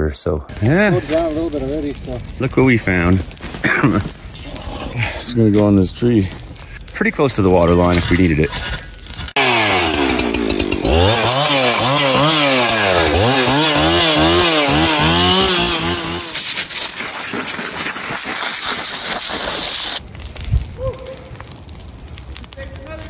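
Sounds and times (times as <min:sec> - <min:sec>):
chainsaw revving: 0:09.4 - 0:17.6.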